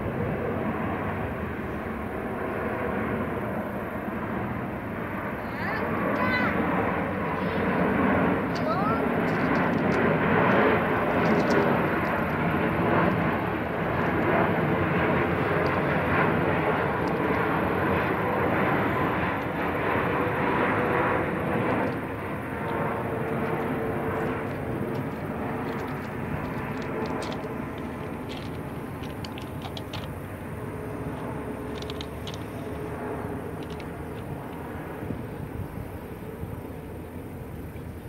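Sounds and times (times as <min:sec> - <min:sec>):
jet plane flying overhead: 0:00.0 - 0:38.0.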